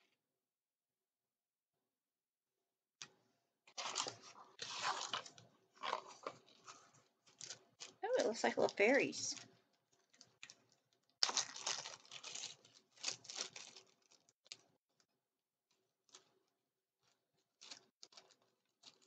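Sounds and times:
packaging crinkling and rustling: 3.7s - 15.1s, 16.0s - 16.4s, 17.0s - 19.0s.

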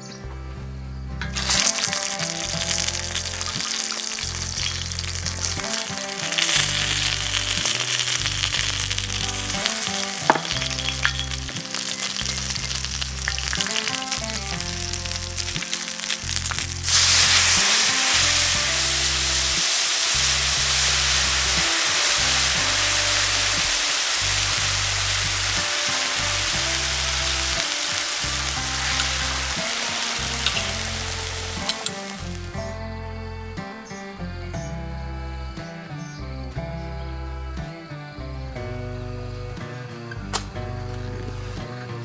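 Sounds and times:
background music: 0.0s - 42.0s
meat sizzling in hot oil: 1.3s - 32.6s
liquid hissing in hot pan: 1.4s - 32.6s.

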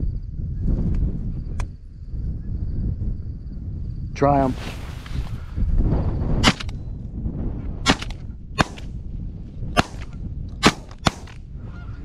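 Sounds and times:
shotgun shots: 7.9s - 8.9s, 9.8s - 11.4s.

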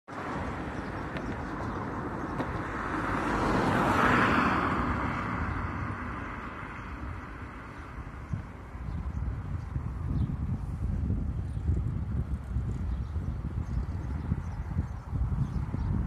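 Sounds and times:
vehicle passing on road: 0.1s - 16.0s
steady low rumble: 4.9s - 16.0s.

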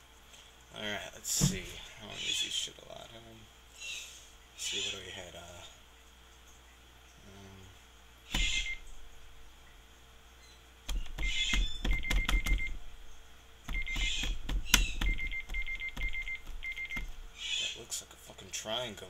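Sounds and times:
keypad button clicks with beeps: 11.2s - 12.8s, 13.7s - 17.1s.

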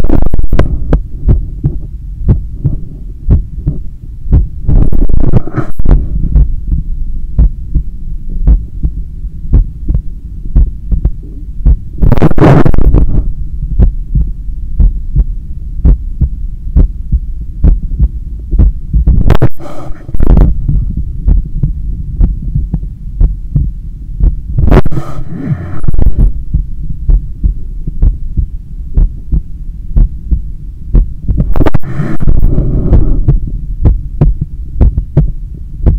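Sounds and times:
heartbeat through stethoscope: 0.0s - 35.9s
low muffled hum: 0.0s - 35.9s
whoosh of rushing noise: 31.4s - 33.4s.

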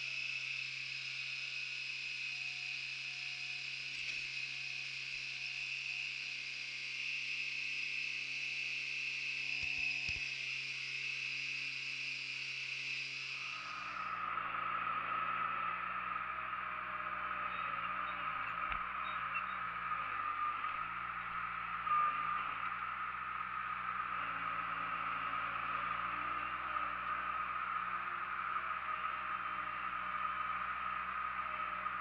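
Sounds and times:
loader diesel engine and hydraulics: 0.0s - 32.0s.

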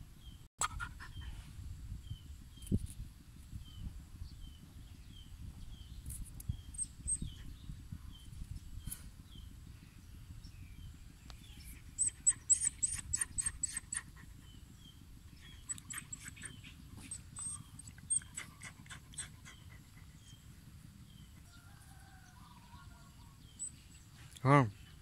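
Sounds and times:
dog panting: 11.6s - 21.5s.

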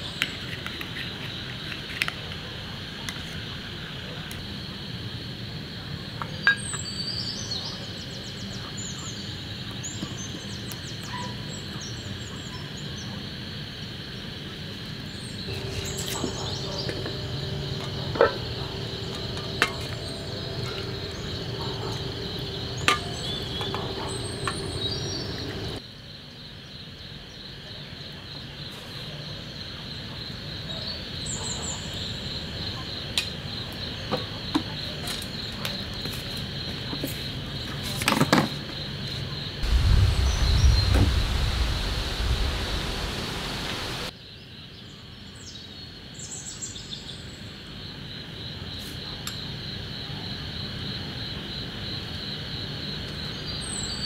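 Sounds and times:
crickets and insects chirping: 0.0s - 54.0s.

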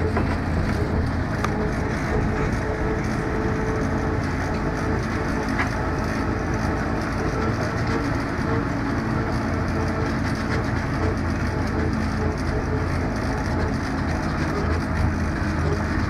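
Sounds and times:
road train rumbling and rattling: 0.0s - 16.0s.

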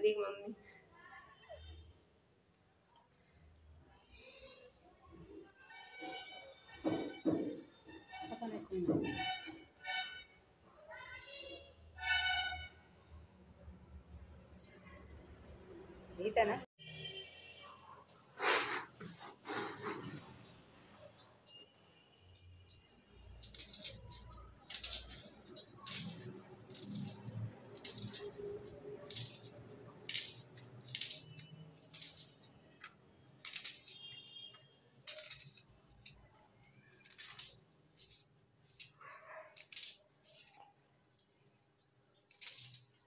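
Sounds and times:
knife peeling onion skin: 23.2s - 34.2s, 35.0s - 43.0s.

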